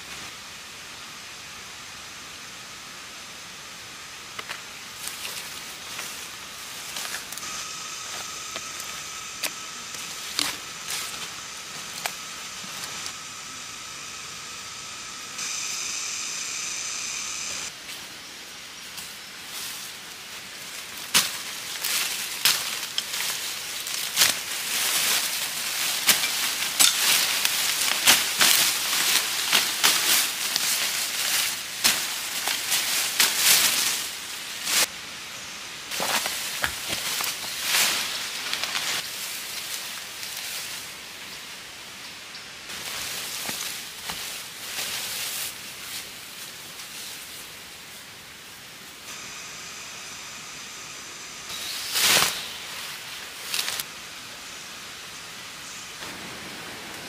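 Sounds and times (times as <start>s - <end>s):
steady outdoor hiss: 0.0s - 57.0s
rustling of ferns and undergrowth: 3.6s - 57.0s
high-pitched buzz: 6.3s - 17.8s, 49.0s - 57.0s.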